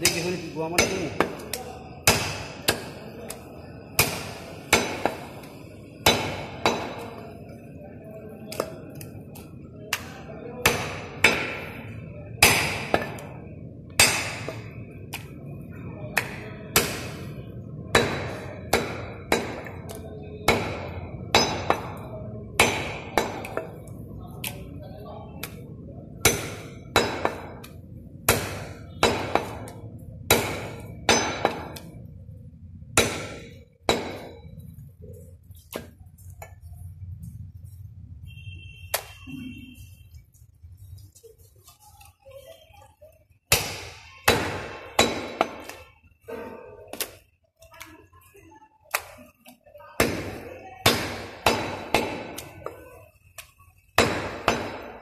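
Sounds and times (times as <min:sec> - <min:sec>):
cleaver chopping meat and bone: 0:00.0 - 0:07.2, 0:08.5 - 0:09.1, 0:09.9 - 0:15.5, 0:16.1 - 0:23.8, 0:25.4 - 0:32.0, 0:32.9 - 0:34.7, 0:43.5 - 0:45.9, 0:48.9 - 0:55.0.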